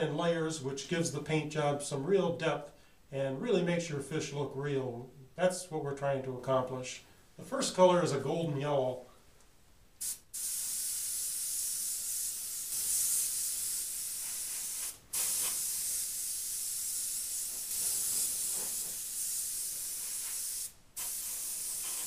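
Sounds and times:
airbrush spraying hiss: 10.0 - 22.0.

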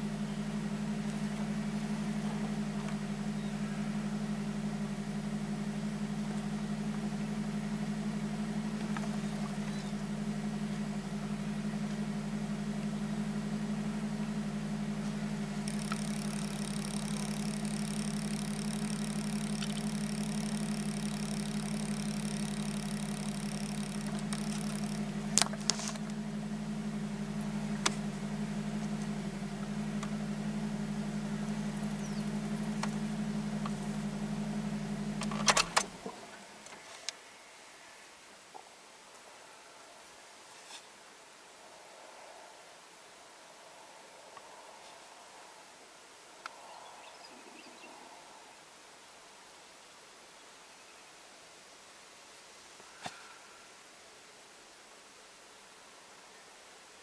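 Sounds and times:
car engine idling: 0.0 - 37.0
sharp clicks: 15.6 - 26.2, 35.2 - 36.1.

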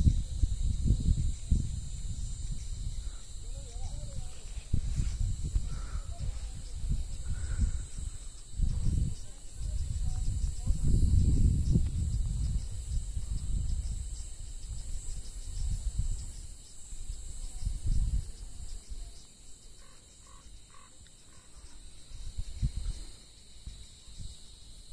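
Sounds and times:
wind buffeting microphone: 0.0 - 19.2, 21.6 - 24.8
faint chirps: 0.0 - 24.6
insects droning: 0.0 - 24.9.

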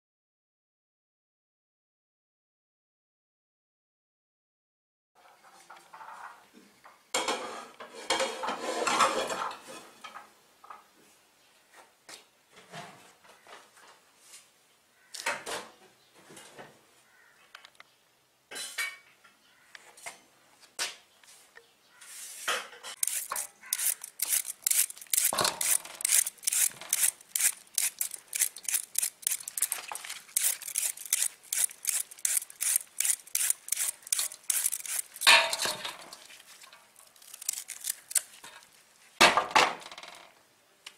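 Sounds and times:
knife and carrots on metal tray: 22.0 - 38.7
carrot scraping on a grater: 22.9 - 36.3, 37.0 - 38.4.

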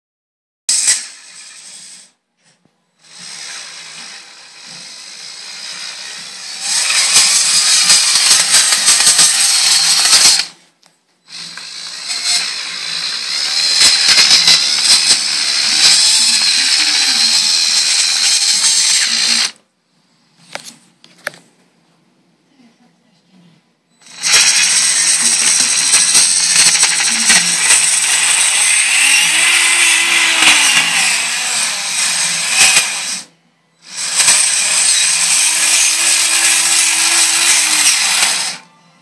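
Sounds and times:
small electric motors whirring: 3.0 - 10.6, 11.3 - 19.6, 24.0 - 38.7.

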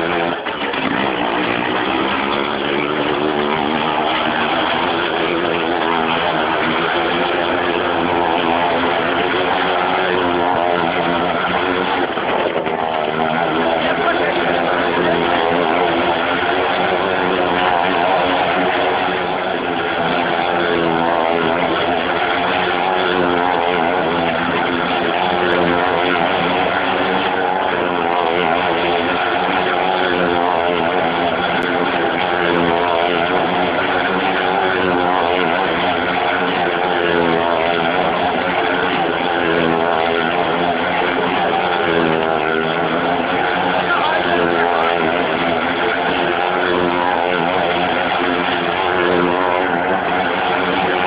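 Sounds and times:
motorcycle engine running hard: 0.0 - 51.0.

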